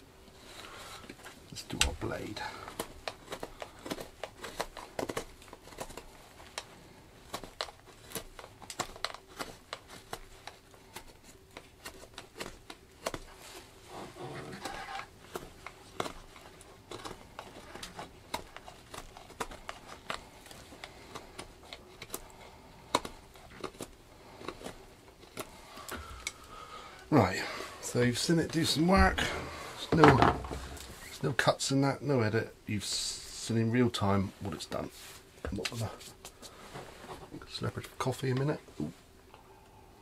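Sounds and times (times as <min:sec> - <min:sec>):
knife carving wood: 0:00.4 - 0:26.8.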